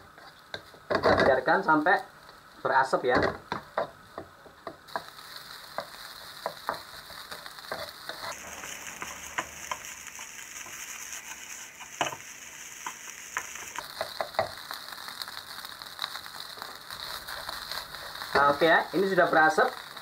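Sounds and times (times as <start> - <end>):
rice sizzling in a pan: 0.0 - 20.0
spatula scraping a pan: 5.7 - 12.2.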